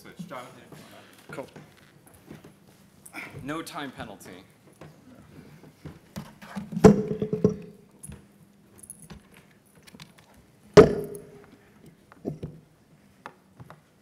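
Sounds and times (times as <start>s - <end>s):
loud knocks on wooden lectern: 6.6s - 7.7s, 10.8s - 11.4s.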